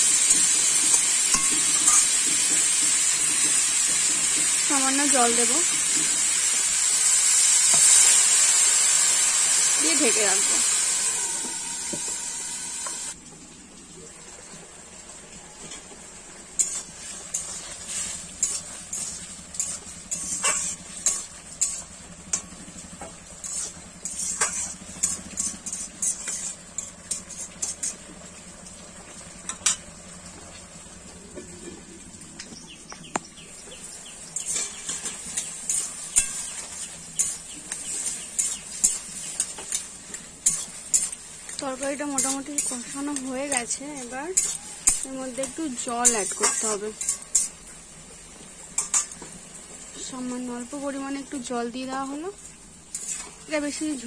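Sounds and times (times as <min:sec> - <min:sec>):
loud steady hiss: 0:00.0 - 0:13.2
pan sizzling: 0:00.0 - 0:54.0
metal spatula scraping a pan: 0:00.2 - 0:04.4, 0:16.6 - 0:28.2, 0:34.3 - 0:47.6, 0:48.8 - 0:49.2, 0:52.9 - 0:54.0.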